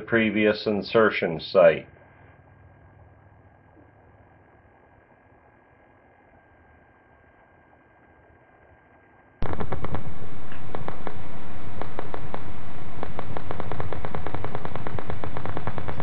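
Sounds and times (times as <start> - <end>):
steady hiss: 0.0 - 2.8, 3.8 - 16.0
rapid clicks and pops: 9.4 - 16.0.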